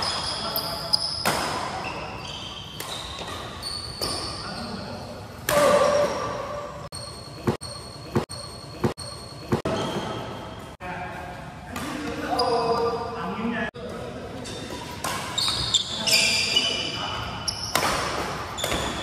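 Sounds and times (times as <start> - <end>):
sneakers squeaking on court: 0.0 - 5.0, 5.8 - 10.7, 12.0 - 13.0, 14.4 - 19.0.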